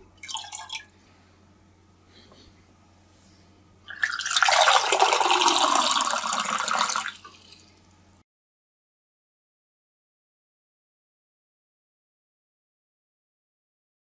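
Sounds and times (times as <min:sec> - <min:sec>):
water pouring into a glass: 0:00.2 - 0:00.9, 0:03.9 - 0:07.6.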